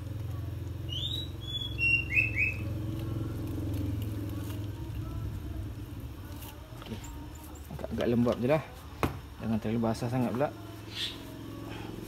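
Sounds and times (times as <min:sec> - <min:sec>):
small birds chirping: 0:00.8 - 0:03.1, 0:10.8 - 0:11.6
low engine-like drone: 0:09.9 - 0:12.0.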